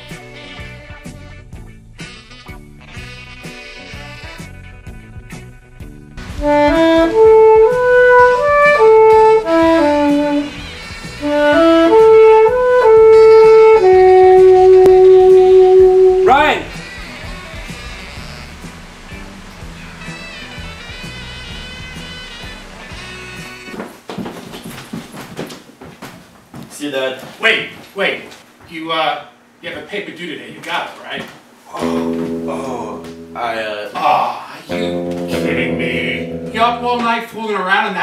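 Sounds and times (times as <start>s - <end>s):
background music with held notes: 0.0s - 23.8s, 31.8s - 38.0s
saxophone melody: 2.0s - 5.0s, 6.4s - 18.6s, 31.8s - 34.0s, 34.7s - 37.3s
low bass line: 6.4s - 10.5s, 11.2s - 16.7s, 31.8s - 33.8s, 34.7s - 37.3s.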